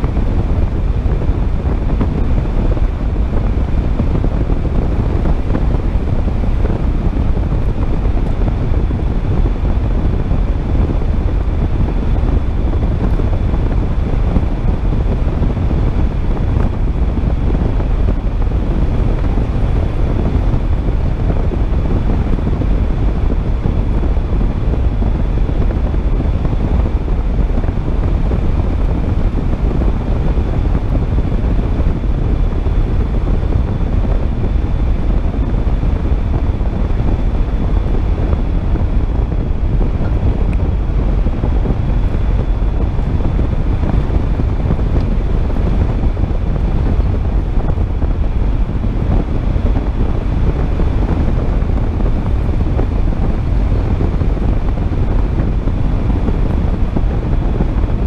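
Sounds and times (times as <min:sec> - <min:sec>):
car engine: 0:00.0 - 0:57.5
wind: 0:00.0 - 0:58.0.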